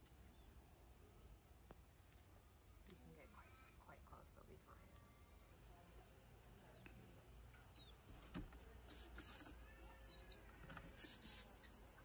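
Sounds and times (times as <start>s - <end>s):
scratching and rustling in a box: 8.1s - 9.6s.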